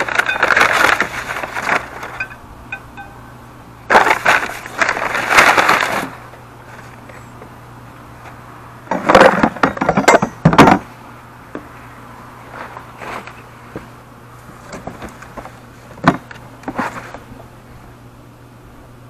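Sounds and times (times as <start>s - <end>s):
packing paper rustling and crumpling: 0.0s - 2.3s, 3.9s - 7.0s.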